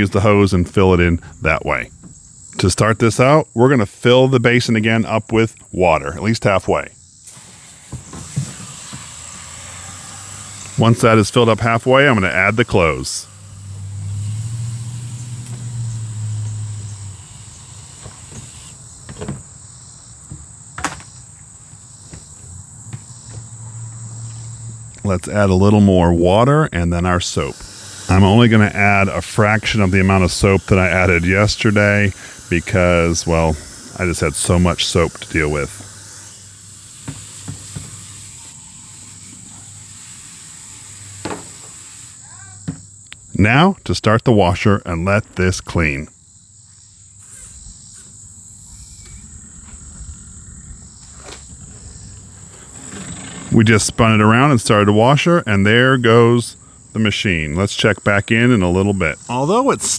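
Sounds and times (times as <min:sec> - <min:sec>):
high insect trill: 0:00.0 - 0:59.9
hose water running into tub: 0:07.3 - 0:18.8, 0:25.0 - 0:42.2
low hum: 0:09.5 - 0:18.0.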